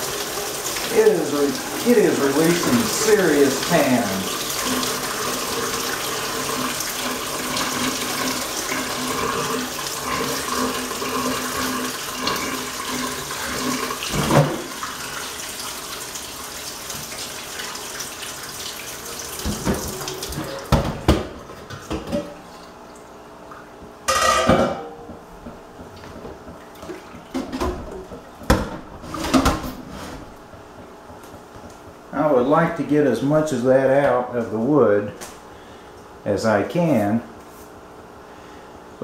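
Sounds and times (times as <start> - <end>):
water pouring into steel sink: 0.0 - 20.8.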